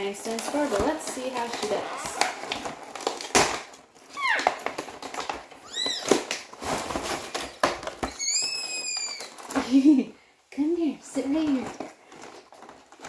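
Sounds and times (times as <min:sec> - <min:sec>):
short high squeaks: 0:08.1 - 0:09.4.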